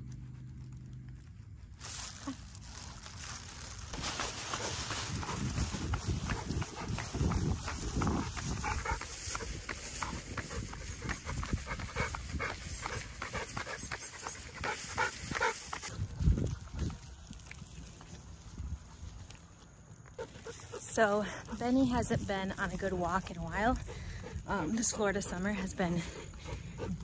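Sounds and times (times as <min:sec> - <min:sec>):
footsteps on concrete: 0:03.9 - 0:16.0
dog panting: 0:04.2 - 0:16.0, 0:23.7 - 0:27.0.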